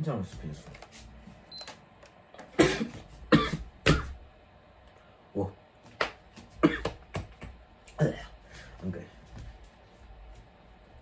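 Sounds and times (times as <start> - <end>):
man coughing: 2.5 - 4.2, 6.6 - 7.0.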